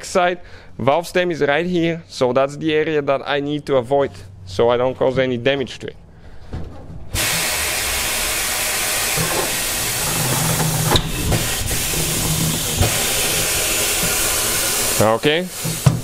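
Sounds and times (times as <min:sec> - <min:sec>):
pneumatic air hissing: 0:07.1 - 0:16.0
tire creaking: 0:08.9 - 0:14.7.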